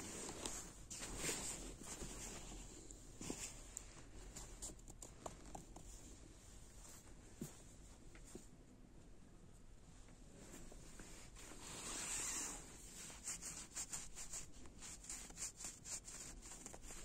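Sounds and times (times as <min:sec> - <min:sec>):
jacket fabric rustling: 0:00.0 - 0:04.7, 0:10.4 - 0:17.0.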